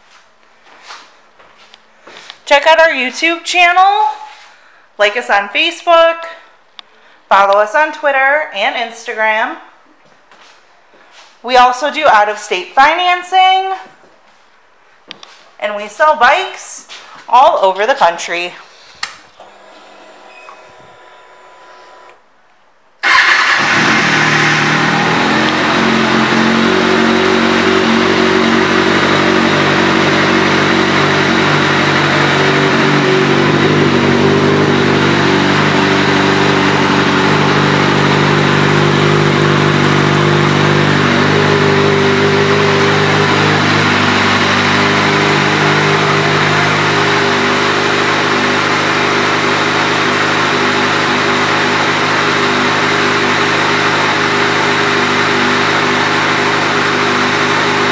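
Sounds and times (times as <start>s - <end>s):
motorcycle engine idling: 23.1s - 48.4s.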